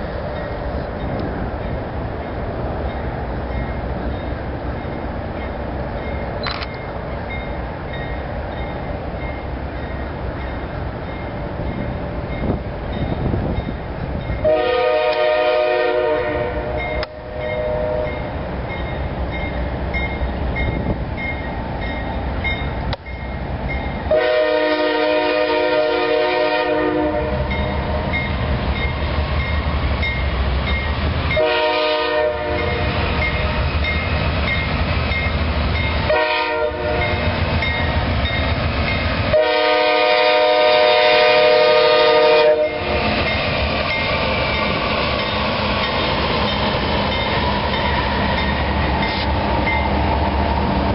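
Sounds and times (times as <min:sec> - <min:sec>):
low rumble of train: 0:00.0 - 0:50.9
train air horn blasts: 0:14.4 - 0:18.2, 0:24.1 - 0:27.5, 0:31.3 - 0:33.6, 0:36.1 - 0:37.2, 0:39.3 - 0:43.1.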